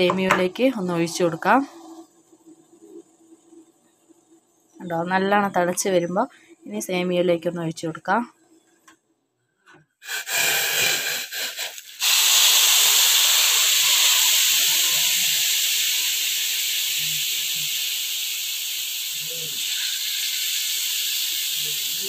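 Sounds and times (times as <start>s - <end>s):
water hissing on hot pan: 10.0s - 22.0s.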